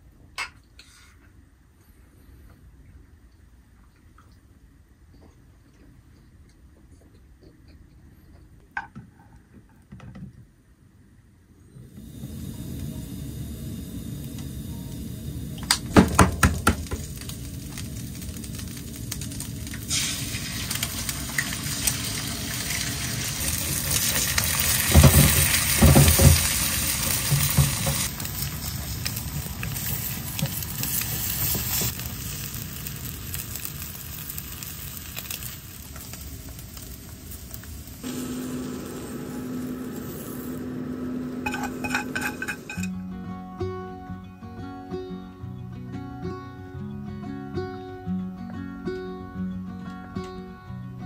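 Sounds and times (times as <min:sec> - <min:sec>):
food sizzling in oil: 0:12.0 - 0:42.9
pan and utensils clattering: 0:24.0 - 0:28.1, 0:41.4 - 0:42.9.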